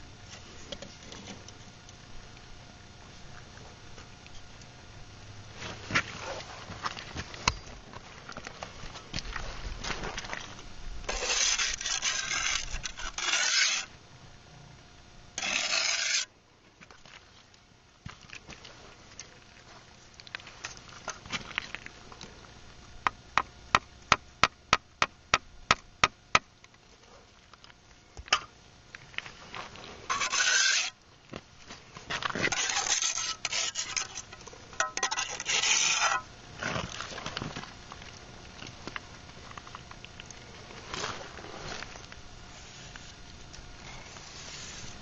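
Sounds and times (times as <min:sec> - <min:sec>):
gritty scraping: 0:08.4 - 0:14.0, 0:15.4 - 0:16.3, 0:29.1 - 0:37.6, 0:40.7 - 0:43.2, 0:43.8 - 0:45.0.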